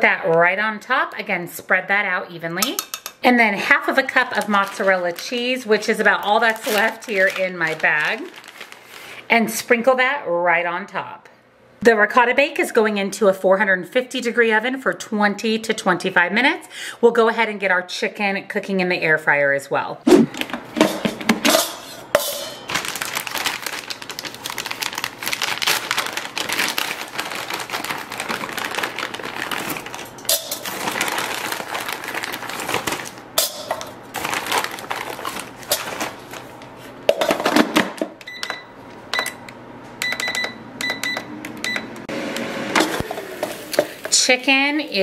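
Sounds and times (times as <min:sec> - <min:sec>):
plastic bag crinkling: 0:03.9 - 0:09.3, 0:22.6 - 0:36.9.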